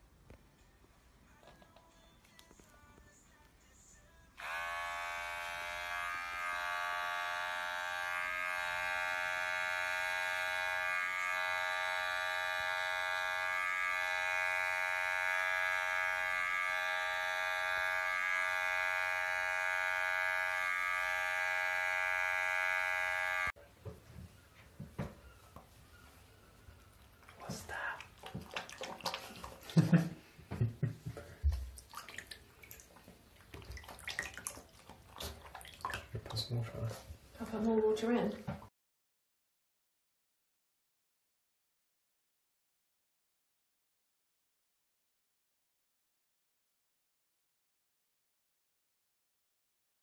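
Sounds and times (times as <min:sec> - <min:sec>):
electric hair clipper buzzing: 0:04.4 - 0:23.6.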